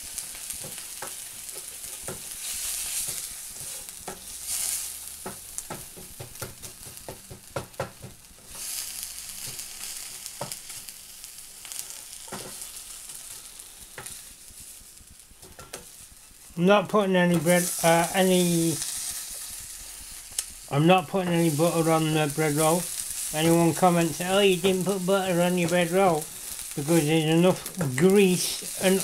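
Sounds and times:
food sizzling in frying pan: 0.0 - 29.0.

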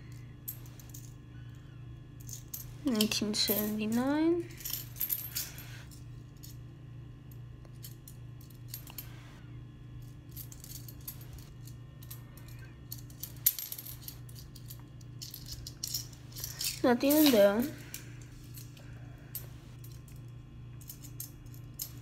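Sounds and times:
coins clinking: 2.2 - 6.6, 10.3 - 20.2.

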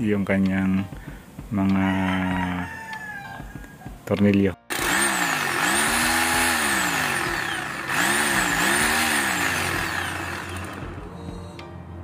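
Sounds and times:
drill motor whining up and down: 4.7 - 11.0.

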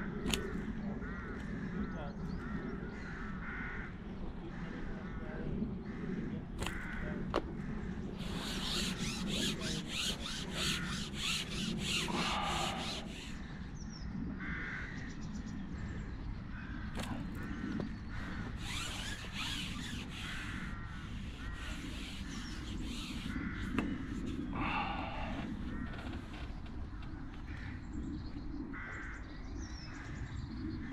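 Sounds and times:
corvids cawing: 0.0 - 13.7, 14.4 - 15.1, 16.5 - 28.0
fast rasping rattle: 8.2 - 13.5, 18.6 - 26.7.

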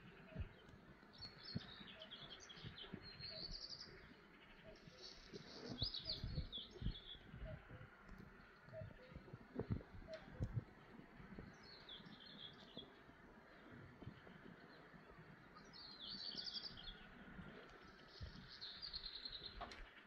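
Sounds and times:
songbird trilling: 0.0 - 10.7
low rumbling background: 0.0 - 20.0.

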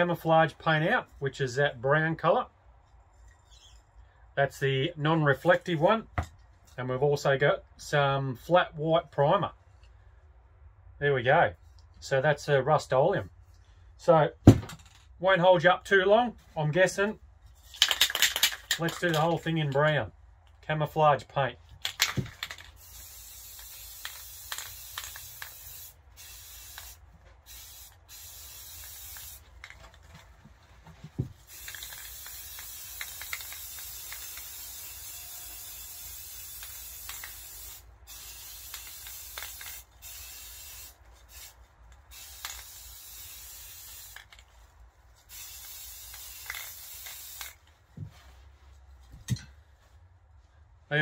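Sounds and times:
spray paint can hissing: 22.1 - 29.7, 31.3 - 44.5, 45.2 - 47.6.

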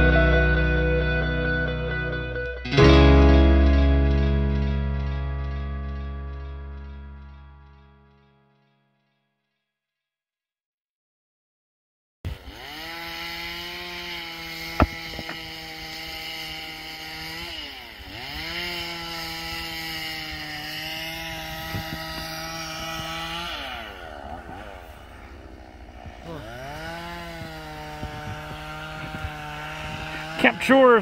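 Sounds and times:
chainsaw engine at high revs: 12.3 - 31.0
sharp knock: 14.8 - 15.4.

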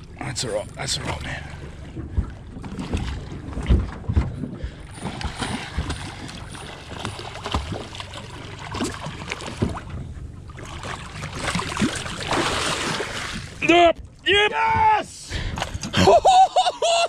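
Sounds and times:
low thumps: 0.0 - 10.4
water splashing and sloshing: 0.0 - 17.0
fish thrashing at surface: 2.2 - 9.9, 10.6 - 13.6.

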